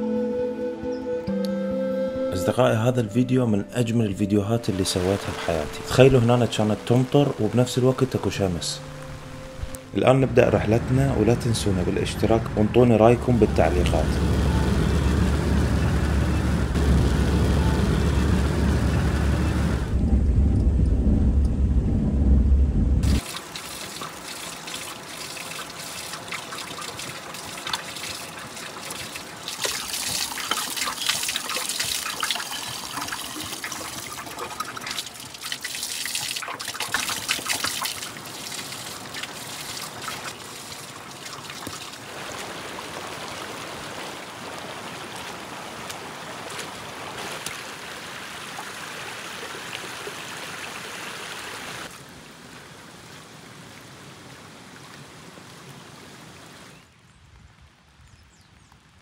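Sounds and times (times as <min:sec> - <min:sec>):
fountain water trickling and splashing: 0:04.7 - 0:09.4, 0:23.1 - 0:59.0
loud low rumble: 0:10.2 - 0:23.2.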